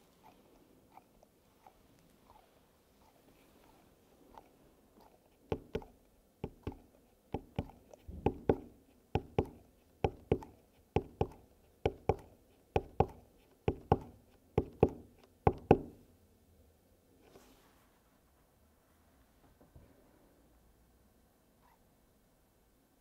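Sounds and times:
knocking on a tabletop: 0:07.4 - 0:16.0.

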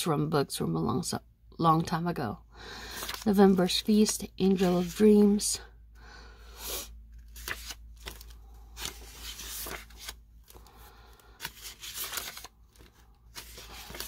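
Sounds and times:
paper sheets rustling: 0:02.9 - 0:05.4, 0:07.2 - 0:14.0.

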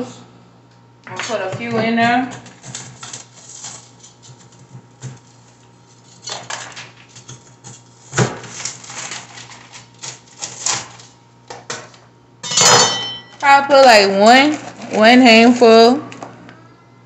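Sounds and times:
utensils and dishes clinking: 0:12.4 - 0:13.5.

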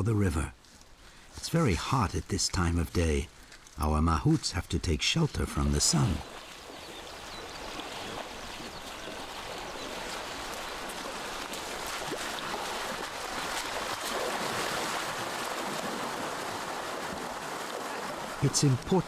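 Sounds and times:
river water rushing: 0:05.7 - 0:19.0.

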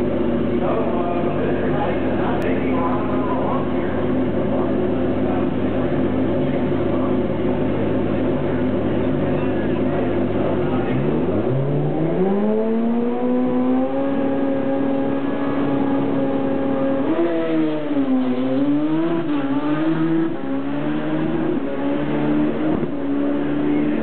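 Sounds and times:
snowmobile engine revving: 0:10.7 - 0:24.0.

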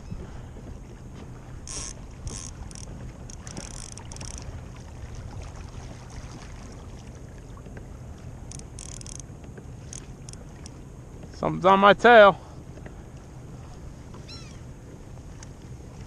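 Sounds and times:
steady low rumble: 0:00.0 - 0:11.6
waves lapping against kayak hull: 0:00.0 - 0:16.0.

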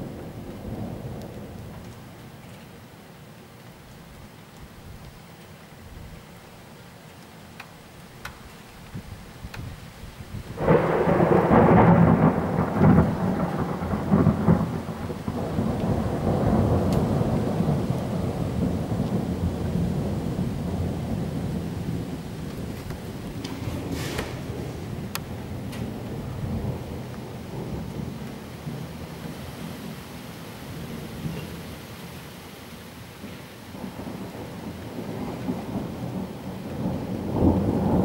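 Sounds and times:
thunder clap and rumble: 0:00.0 - 0:02.0, 0:10.3 - 0:29.9, 0:33.2 - 0:38.0
rain pattering: 0:00.0 - 0:38.0.

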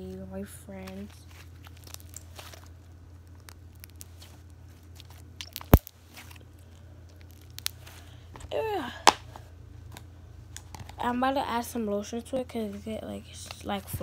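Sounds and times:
slime popping: 0:01.3 - 0:07.9
slime squeezed wet crackling: 0:01.3 - 0:07.9.

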